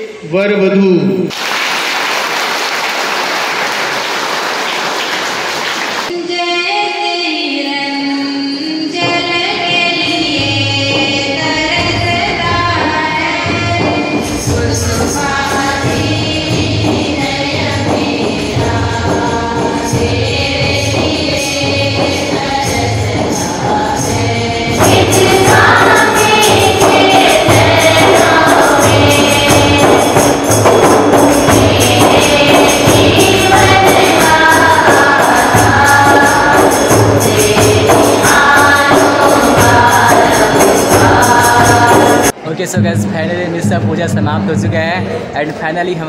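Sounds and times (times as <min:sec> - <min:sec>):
congregation applauding: 0:01.3 - 0:06.1
group singing a church song: 0:09.3 - 0:43.1
jingling percussion: 0:10.7 - 0:42.4
steady drum beat: 0:11.7 - 0:45.4.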